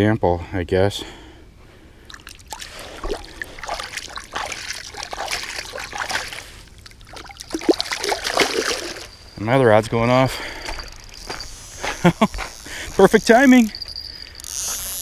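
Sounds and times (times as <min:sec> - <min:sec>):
water splashing and trickling: 0:02.0 - 0:09.4.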